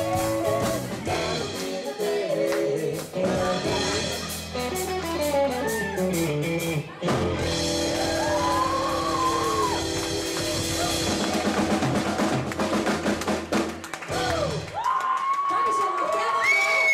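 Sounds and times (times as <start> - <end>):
country-rock band playing: 0.0 - 14.7
quick drum hits: 9.1 - 14.7.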